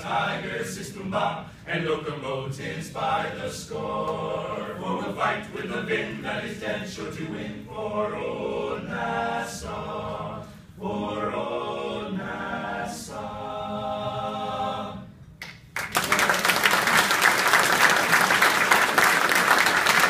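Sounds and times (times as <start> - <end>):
male a cappella group singing: 0.0 - 15.2
audience applause: 15.8 - 20.0.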